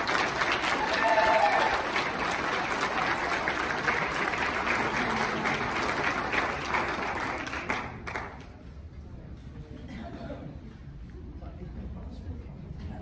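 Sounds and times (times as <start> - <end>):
audience applauding: 0.0 - 8.5.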